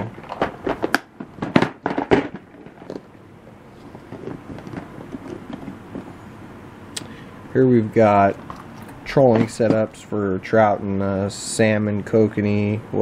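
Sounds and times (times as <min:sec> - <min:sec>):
plastic tackle box clicks and clacks: 0:00.0 - 0:03.1, 0:03.8 - 0:06.2.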